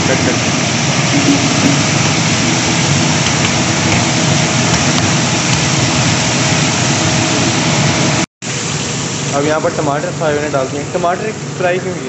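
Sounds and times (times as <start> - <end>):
low steady hum: 0.0 - 8.2
kebabs sizzling in hot oil: 0.0 - 12.0.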